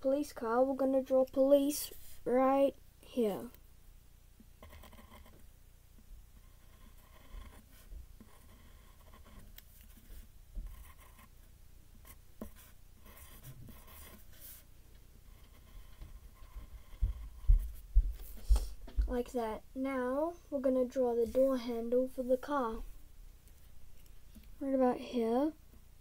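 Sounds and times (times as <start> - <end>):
pencil scratching on paper: 4.6 - 5.4, 6.4 - 17.8.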